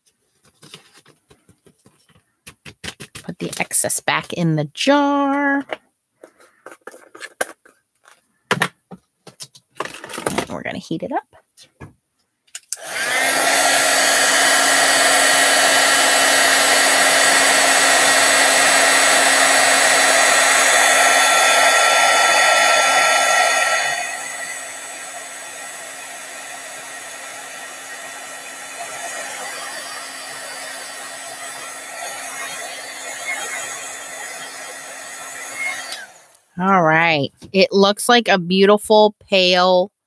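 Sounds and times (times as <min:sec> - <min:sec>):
heat gun blowing with fan whine: 0:12.7 - 0:36.5.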